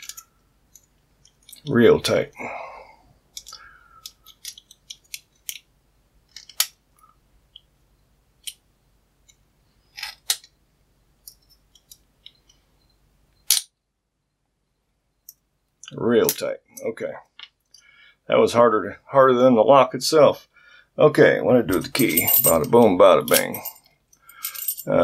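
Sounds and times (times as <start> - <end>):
small metallic clicks: 3.3 - 5.7, 6.3 - 7.7.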